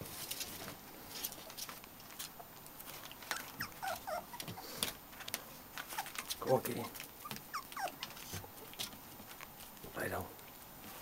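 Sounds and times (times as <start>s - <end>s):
puppy claws clicking and scrabbling: 0.2s - 10.6s
puppies squeaking and whimpering: 3.2s - 4.8s, 5.8s - 8.8s.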